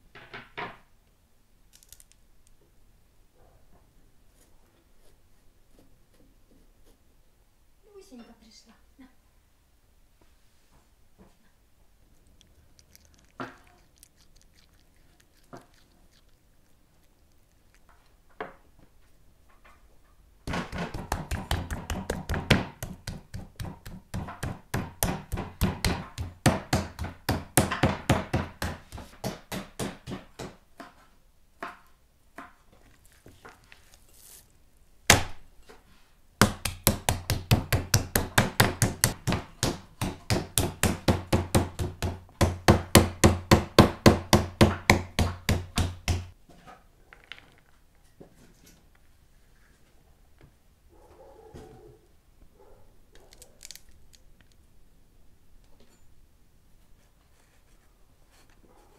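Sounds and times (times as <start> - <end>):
meat mallet pounding beef: 20.5 - 30.6, 36.4 - 46.4.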